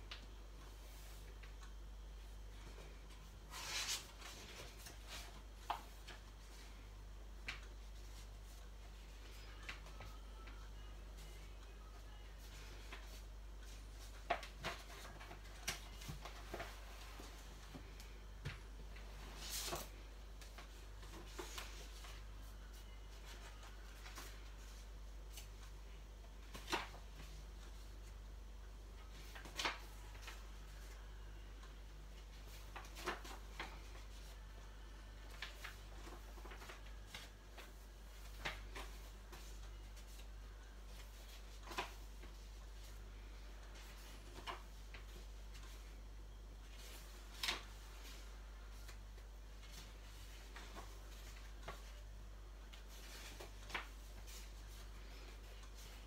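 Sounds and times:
low steady hum: 0.0 - 56.0
paper rustle: 2.5 - 6.8, 12.4 - 18.0, 18.9 - 25.8, 32.3 - 34.5, 35.2 - 46.0, 46.6 - 56.0.

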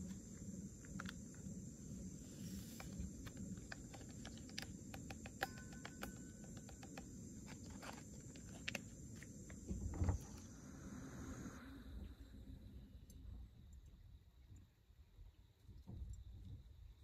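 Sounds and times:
contents clicking into tumbler: 2.9 - 8.9.

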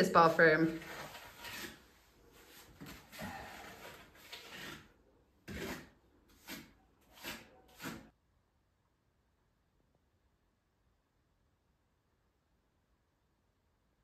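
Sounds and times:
trowel scraping plaster: 0.1 - 8.2.

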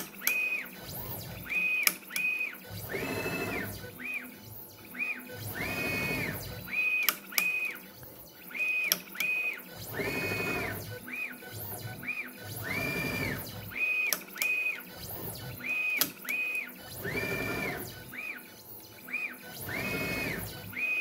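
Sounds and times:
stepper motors whining: 0.0 - 21.0
sharp clicks: 1.8 - 2.4, 8.8 - 9.5.

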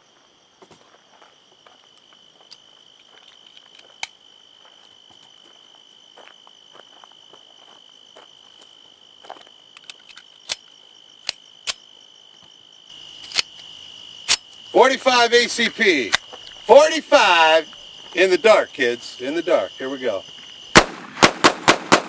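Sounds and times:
crickets trilling: 0.0 - 22.0
metallic clicks of pistols loading: 3.2 - 4.2, 9.8 - 11.8, 13.2 - 13.7, 14.3 - 14.5.

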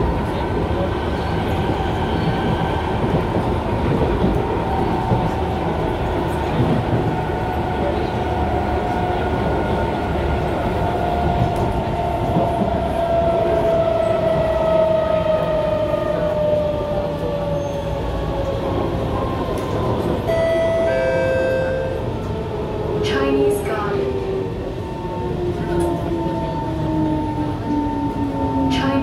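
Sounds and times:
wheels rumbling on track: 0.0 - 29.0
two-note chime: 20.3 - 22.0.

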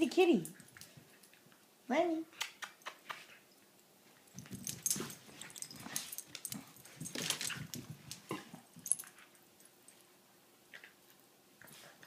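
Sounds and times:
paws scuffling: 4.0 - 9.0.

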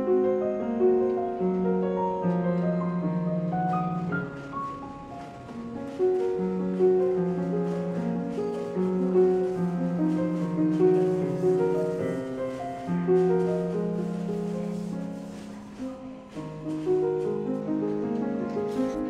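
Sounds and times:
slow keyboard music: 0.0 - 19.0.

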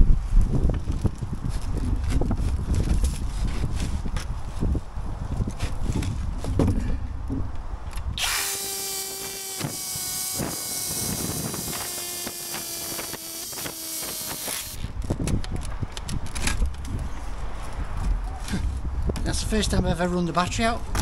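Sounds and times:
drill boring into masonry: 8.2 - 14.9.

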